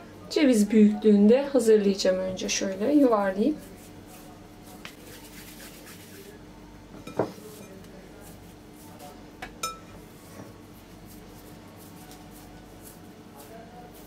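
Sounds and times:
kitchenware knocking: 7.0 - 7.4.

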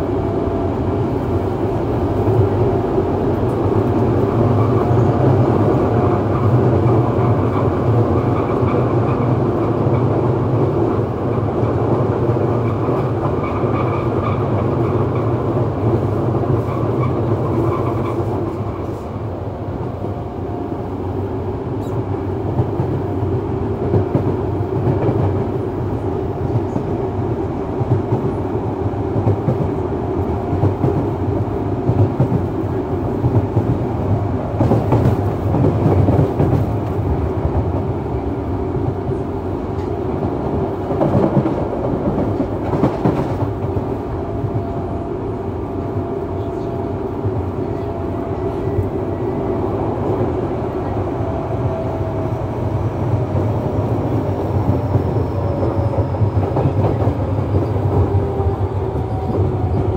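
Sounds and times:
train wheels rumbling on rail: 0.0 - 59.9.

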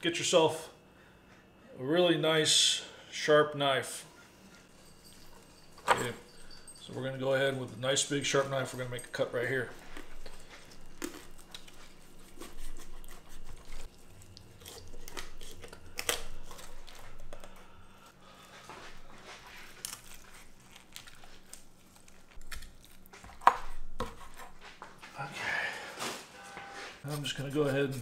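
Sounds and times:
bone cracking: 19.6 - 23.7.

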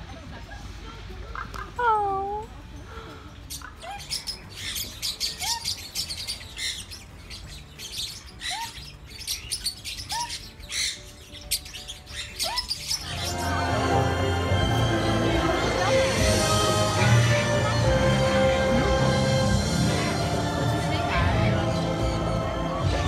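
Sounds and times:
budgerigars chirping: 3.5 - 14.2.

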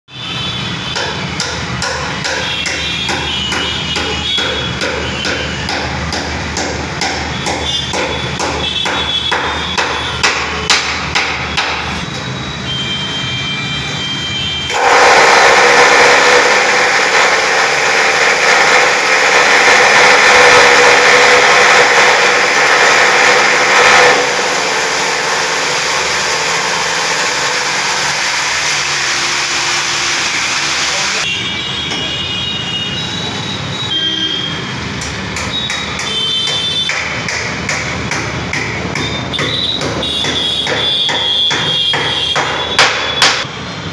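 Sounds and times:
hammer tapping on wood: 1.0 - 11.8, 35.0 - 43.4
electric drill running: 14.7 - 31.2.

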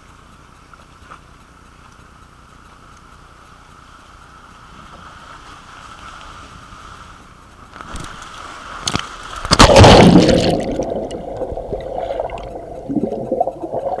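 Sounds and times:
water rushing down flume: 4.7 - 14.0
underwater gurgling: 7.9 - 14.0
loud splash into pool: 9.5 - 10.9.

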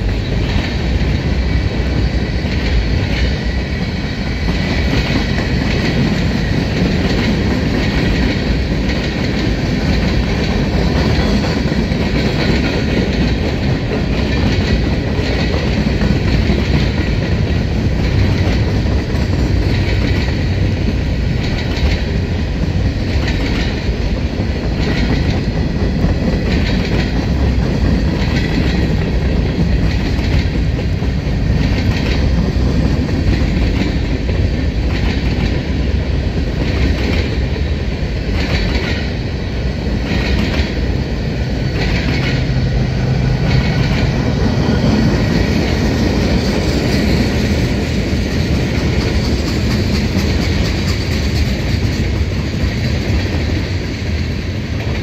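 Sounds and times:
steel wheels rumbling on rail: 0.0 - 55.0
wheels clickety-clack on rail joints: 0.0 - 55.0.

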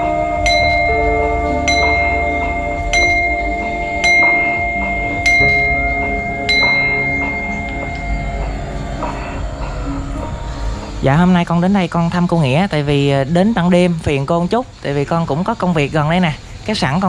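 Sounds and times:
prayer bell ringing: 0.0 - 12.4
low drone of shifting tones: 0.0 - 14.4.

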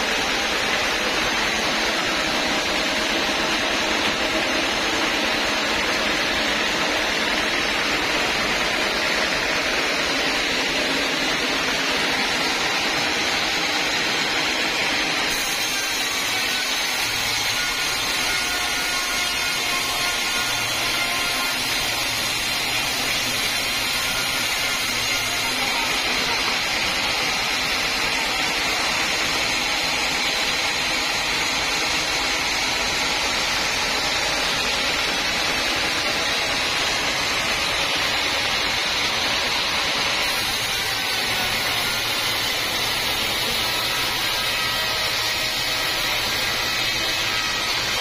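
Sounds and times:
band saw cutting log: 0.0 - 48.0.

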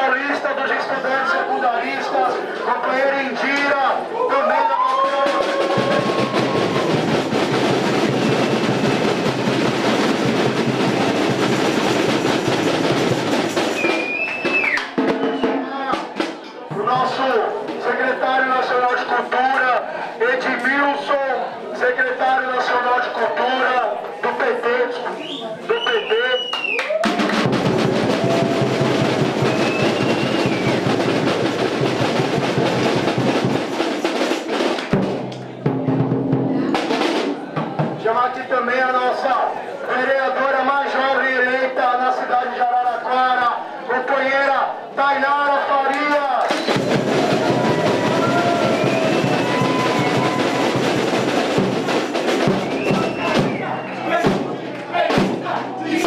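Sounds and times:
crowd applauding and cheering: 4.1 - 9.4, 13.8 - 15.4, 25.8 - 31.0, 45.9 - 51.7
drums fast steady beat: 5.0 - 18.2, 26.9 - 38.2, 46.5 - 56.0
sharp drum hit: 46.5 - 53.6.

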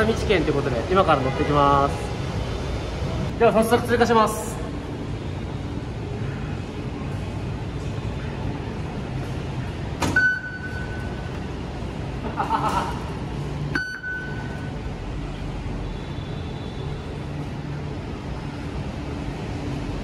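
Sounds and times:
ticket gate beeping: 10.0 - 11.4, 13.7 - 14.8.

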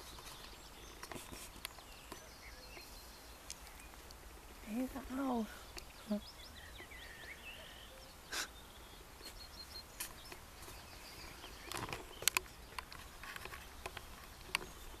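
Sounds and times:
small bird chirps: 0.0 - 15.0
camera handling clicks and rustles: 11.6 - 14.8.

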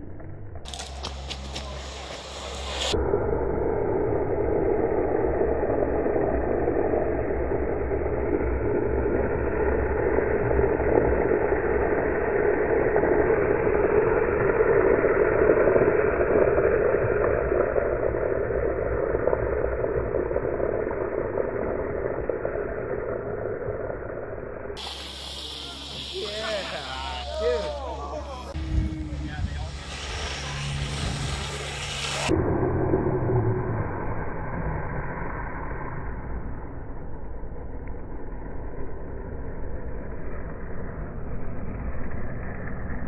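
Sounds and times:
longboard wheels rolling on asphalt: 0.6 - 3.0, 12.9 - 32.4.

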